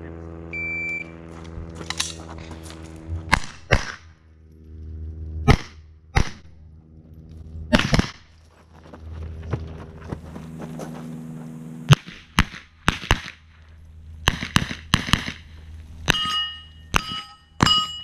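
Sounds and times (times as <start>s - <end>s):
rifle shots: 3.3s - 4.2s, 5.4s - 6.6s, 7.7s - 8.3s, 11.9s - 13.5s, 14.2s - 15.5s.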